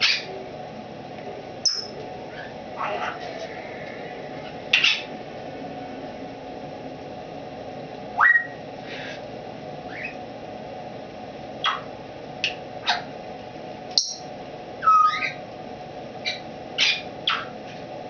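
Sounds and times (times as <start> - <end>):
parrot whistles and chirps: 1.6 - 2.5, 8.2 - 8.6, 9.9 - 10.2, 14.0 - 15.4.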